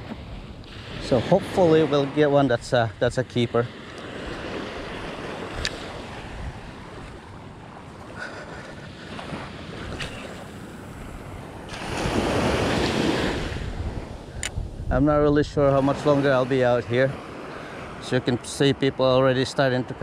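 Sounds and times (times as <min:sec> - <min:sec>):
waves washing onto sand: 0:00.0 - 0:20.0
wind on microphone: 0:04.2 - 0:07.4, 0:08.5 - 0:17.2.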